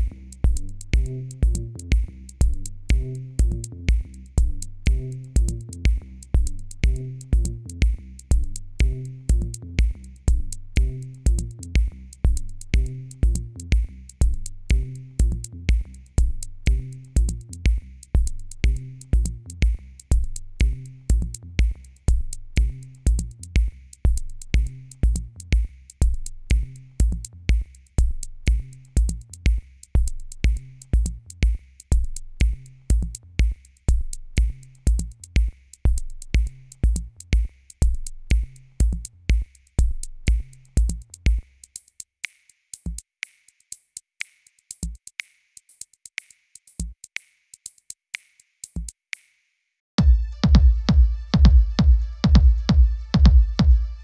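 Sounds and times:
bass line: 0.0s - 31.3s, 50.0s - 54.0s
kick drum beat: 0.0s - 41.5s, 42.8s - 43.1s, 44.8s - 45.1s, 46.8s - 47.0s, 50.0s - 54.0s
hi-hat ticks: 0.0s - 49.6s.

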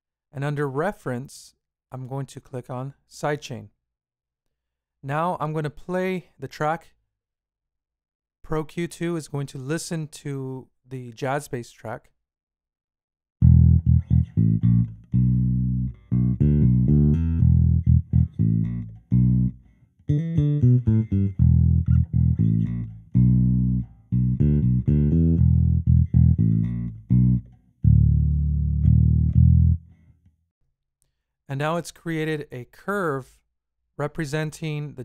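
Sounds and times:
plucked bassline: 13.4s - 30.0s.

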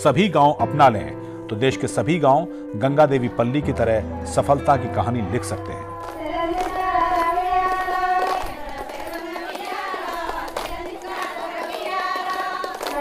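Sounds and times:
high voices singing together: 2.9s - 13.0s.

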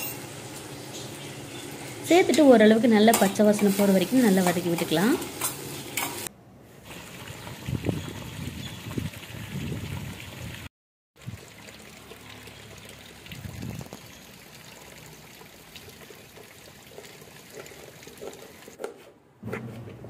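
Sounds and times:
water pouring and splashing: 3.6s - 18.8s.

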